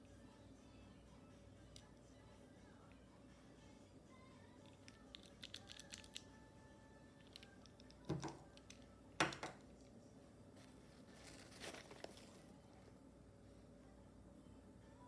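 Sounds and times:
pens knocking on table: 8.1s - 8.4s, 9.2s - 9.6s
rustling in fabric pencil case: 10.5s - 13.0s.

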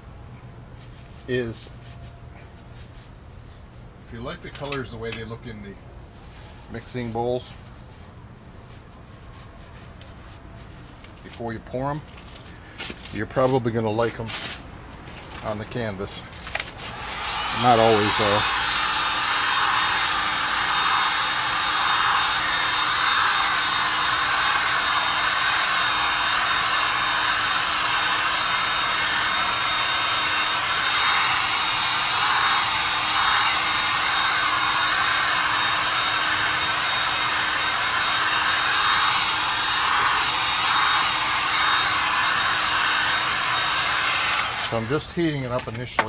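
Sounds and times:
heat gun blowing air: 16.5s - 45.7s.

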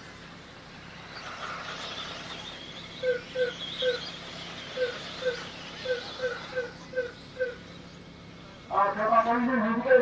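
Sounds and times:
animal squeaky calls: 1.8s - 8.1s.

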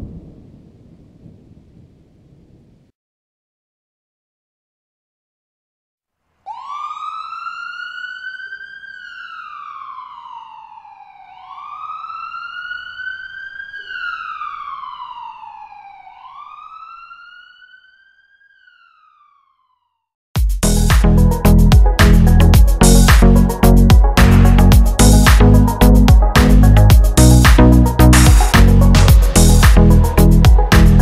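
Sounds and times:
siren wailing: 6.5s - 20.1s, 21.9s - 31.0s.

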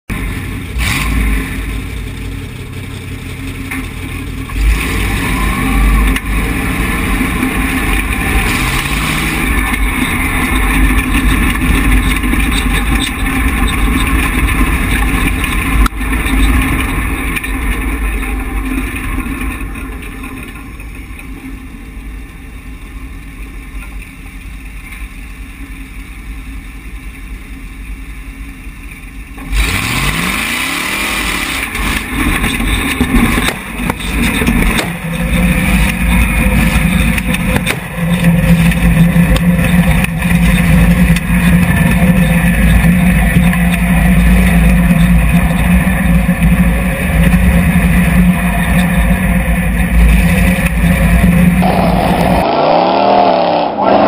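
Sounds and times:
truck engine revving: 0.1s - 20.5s, 29.4s - 54.0s
chassis thumps: 31.4s - 52.4s.

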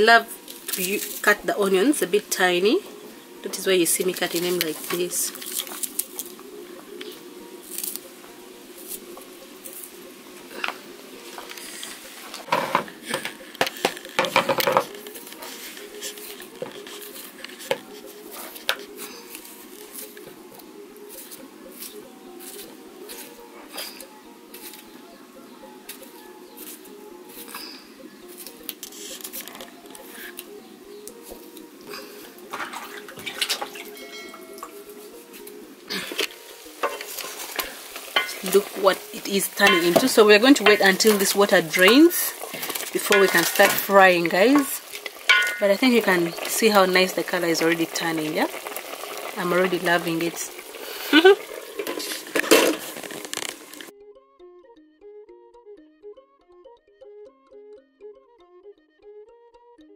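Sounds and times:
water splashing in metal basin: 32.5s - 34.8s, 36.8s - 53.9s
rustling and clatter: 50.0s - 53.9s
pieces dropping into plastic bowl: 51.8s - 53.8s.

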